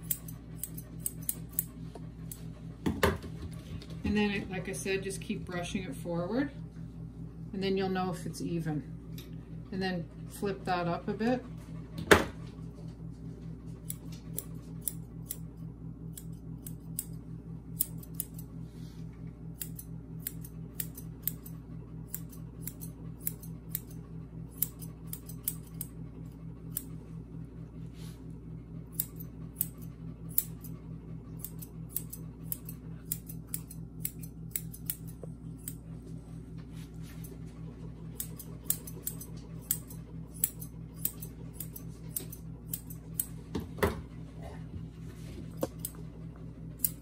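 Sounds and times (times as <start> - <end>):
shears snipping hair: 0.0 - 2.6, 13.6 - 27.2, 28.8 - 43.5, 45.2 - 47.0
steady low hum: 0.0 - 47.0.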